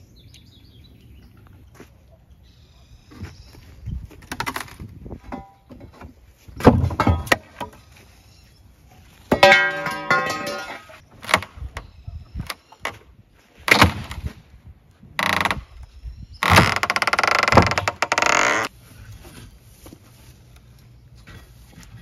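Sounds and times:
wood knocking and cracking: 0:04.2 - 0:07.8, 0:16.4 - 0:18.7
wood and nails creaking: 0:15.2 - 0:18.7.

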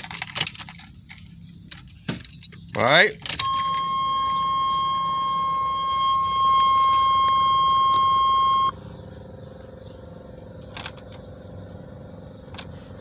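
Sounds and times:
electronic warning buzzer: 0:03.4 - 0:08.8.

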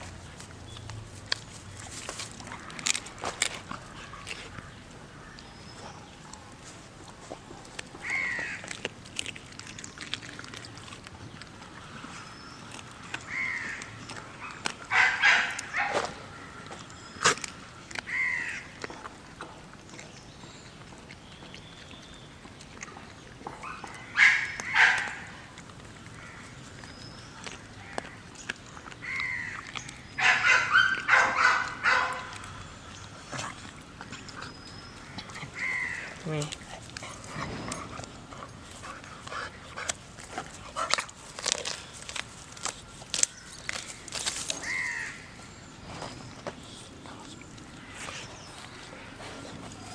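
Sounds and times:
sharp crunch: 0:00.0 - 0:11.6, 0:12.7 - 0:20.1, 0:39.8 - 0:45.2
birds calling: 0:00.0 - 0:19.0, 0:19.9 - 0:49.9
dog chewing raw meat: 0:00.0 - 0:49.9.

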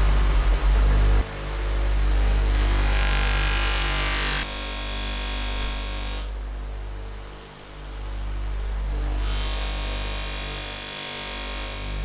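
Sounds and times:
bench grinder motor hum: 0:02.2 - 0:06.3, 0:09.1 - 0:12.0.

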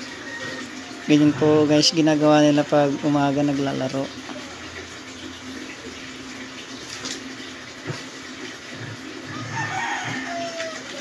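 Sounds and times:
rooster crowing: 0:00.0 - 0:01.2, 0:09.3 - 0:11.0.

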